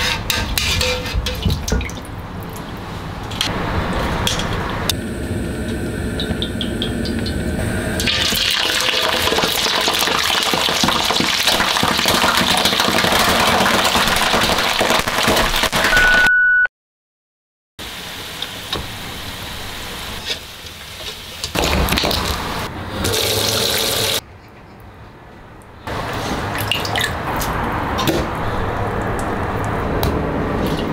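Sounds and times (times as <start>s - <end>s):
oil sizzling and crackling: 3.5s - 15.9s, 17.8s - 24.2s.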